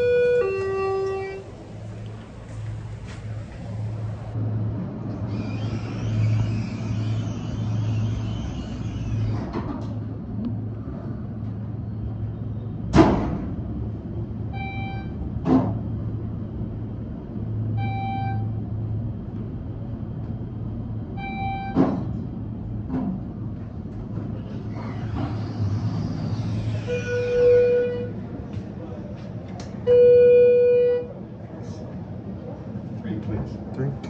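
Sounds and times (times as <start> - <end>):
elevator chime: 0.0 - 1.6, 17.8 - 18.6, 26.8 - 28.2, 29.9 - 31.2
elevator low hum: 0.0 - 34.0.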